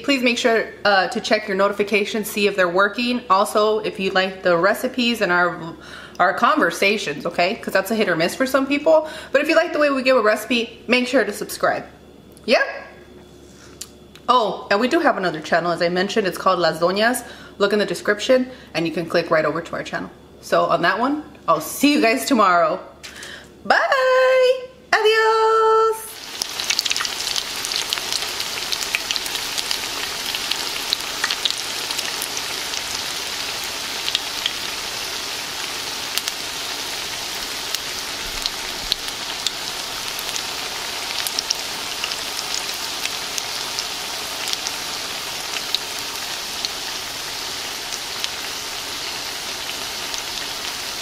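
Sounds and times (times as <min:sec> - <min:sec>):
food sizzling in oil: 0:26.1 - 0:51.0.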